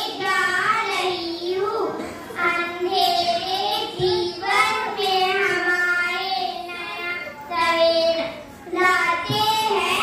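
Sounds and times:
girl singing into a microphone: 0.0s - 10.0s.

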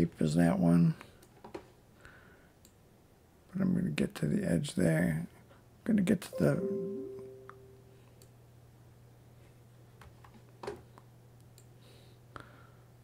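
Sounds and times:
low steady hum: 6.3s - 9.9s
computer mouse clicks: 11.4s - 11.7s.

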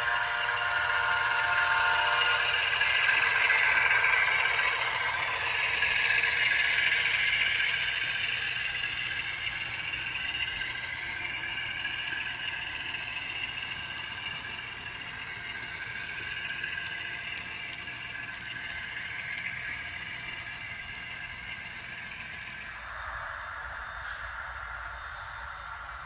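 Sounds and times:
model train whirring and clicking: 0.0s - 26.0s.

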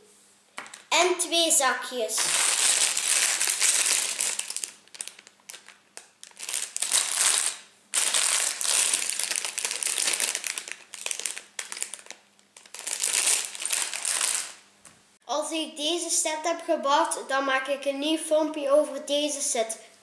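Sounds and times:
plastic bags crinkling: 0.6s - 0.9s, 2.2s - 14.6s.

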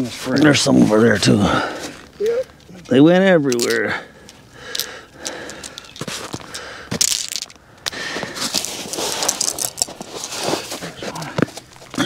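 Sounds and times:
hand digging through crusty snow: 8.4s - 11.3s.

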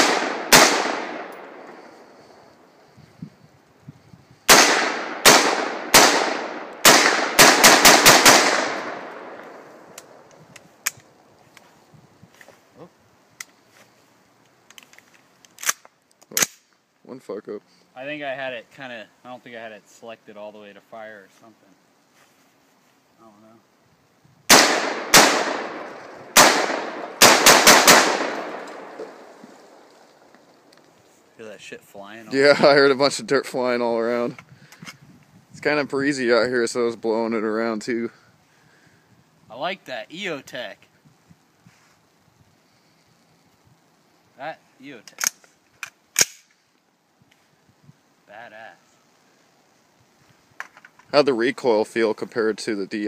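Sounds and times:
rifle shots echoing: 0.0s - 2.0s, 4.5s - 10.2s, 24.5s - 29.9s.

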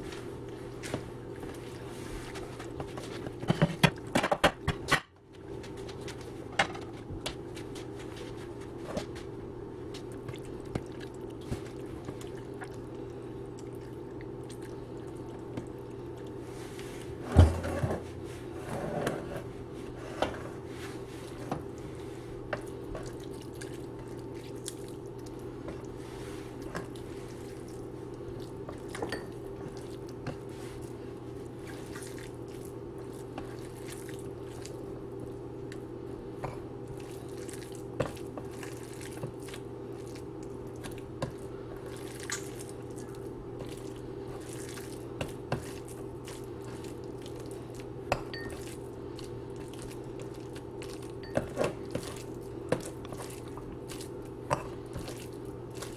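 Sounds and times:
steady low hum: 0.0s - 55.9s.

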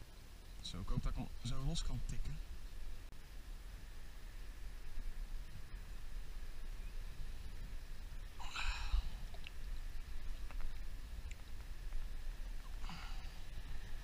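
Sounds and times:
low steady rumble: 0.0s - 14.0s
breathy exhales: 8.4s - 9.4s, 12.8s - 14.0s.

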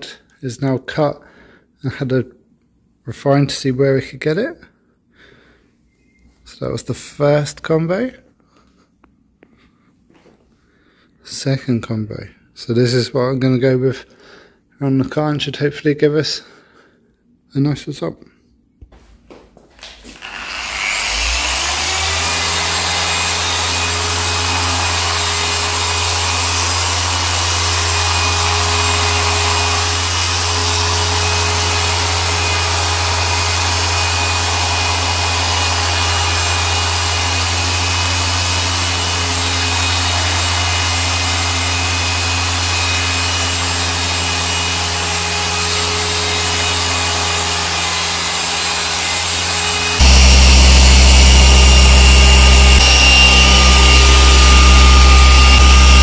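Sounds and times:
machine polisher running: 20.0s - 56.0s.

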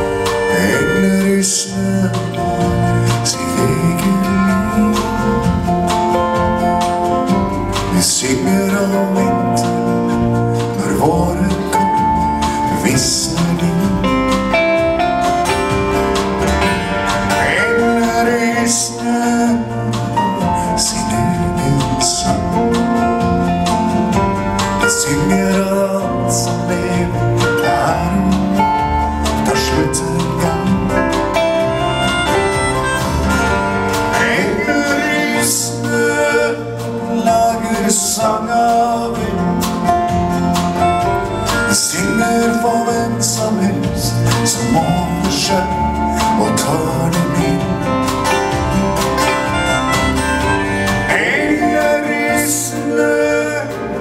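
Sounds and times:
live country band playing: 0.0s - 54.0s.

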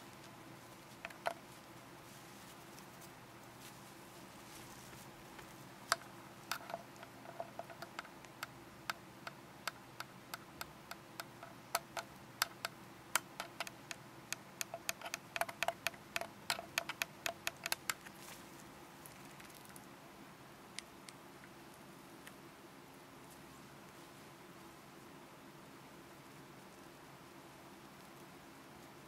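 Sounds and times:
parrot clicking its beak: 5.9s - 18.1s.

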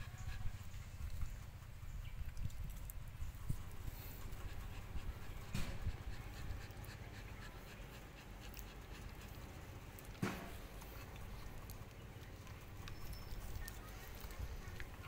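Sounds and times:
dog panting: 0.0s - 15.0s.

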